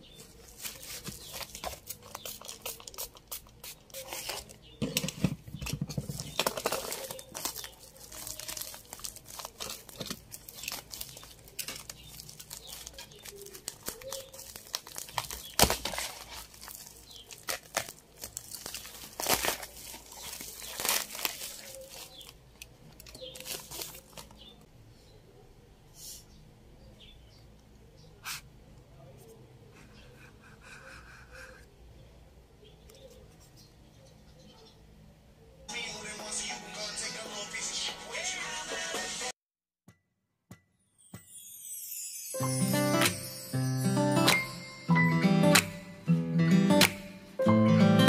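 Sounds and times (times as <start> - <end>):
plastic mailer crinkling: 0.2 - 24.6.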